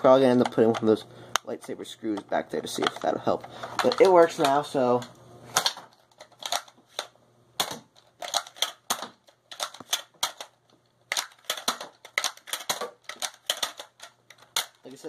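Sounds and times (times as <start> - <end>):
toy blaster plastic clacks: 3.8 - 4.6, 5.6 - 14.9.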